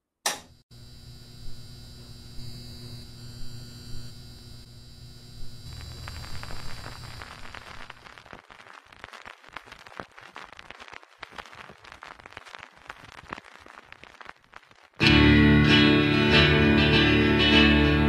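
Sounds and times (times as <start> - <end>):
record player switch click: 0.2 - 0.5
amplifier hum with hiss: 0.2 - 18.0
vinyl crackle: 0.8 - 18.0.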